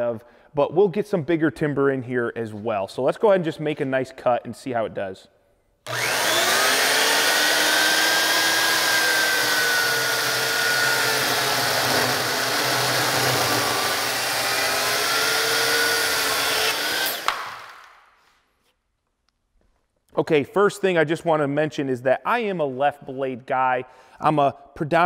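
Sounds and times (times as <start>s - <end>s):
chainsaw cutting wood: 5.9s - 18.0s.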